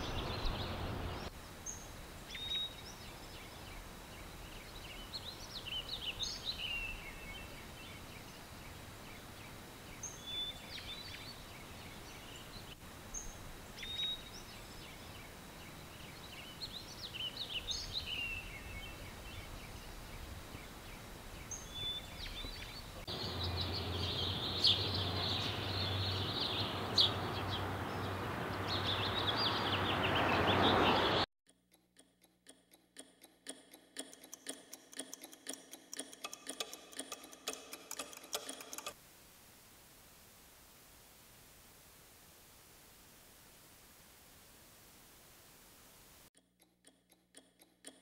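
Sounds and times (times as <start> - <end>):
faint hiss: 0.0 - 23.4, 39.0 - 46.3
birds chirping: 0.0 - 31.3
rapid regular ticking: 31.5 - 39.0, 46.4 - 48.0.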